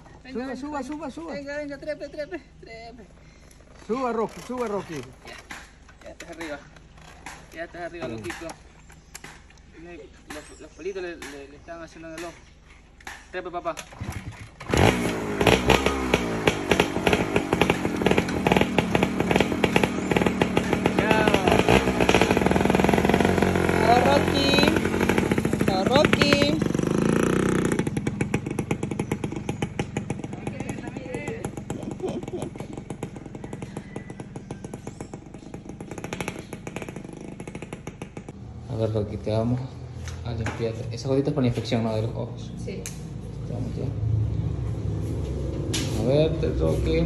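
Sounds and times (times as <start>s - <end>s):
motorcycle engine riding away: 0.0s - 12.9s, 13.6s - 47.0s
small motorcycle engine putter: 3.5s - 9.3s.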